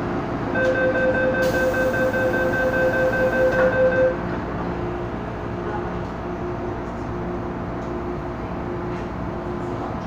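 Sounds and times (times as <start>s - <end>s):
train car hum: 0.0s - 10.0s
train doors sliding shut: 0.6s - 4.0s
door warning beeping tone: 0.6s - 4.2s.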